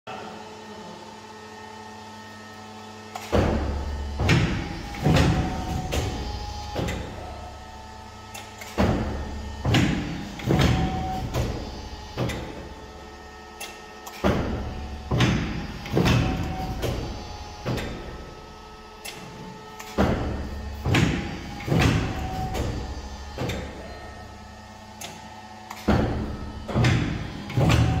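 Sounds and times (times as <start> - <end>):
guillotine cutter machine hum: 0.1 - 28.0
loud clunks and knocks: 3.2 - 7.1, 8.6 - 12.7, 14.2 - 18.1, 19.9 - 23.9, 25.7 - 28.0.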